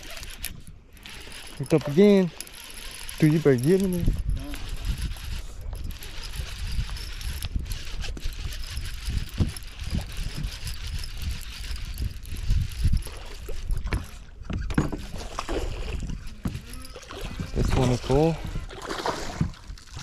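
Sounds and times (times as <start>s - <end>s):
fishing reel ticking and whirring: 0.0s - 20.0s
wind rumbling on microphone: 0.0s - 20.0s
water slapping against boat: 12.8s - 20.0s.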